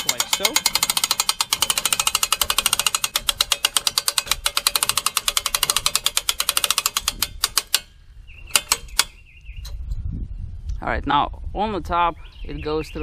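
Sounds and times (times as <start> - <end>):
winch ratchet clicking: 0.0 - 9.8.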